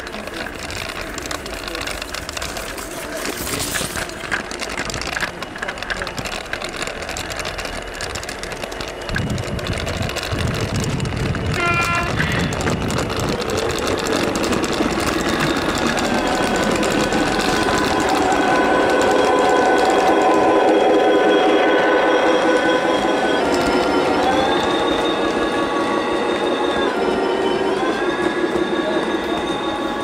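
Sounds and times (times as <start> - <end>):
model train wheels rattling: 0.0 - 21.0
model train horn blast: 11.5 - 12.5.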